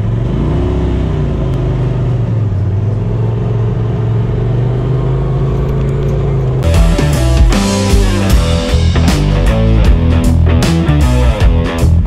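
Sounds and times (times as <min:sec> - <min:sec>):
utility vehicle engine running: 0:00.0 - 0:12.0.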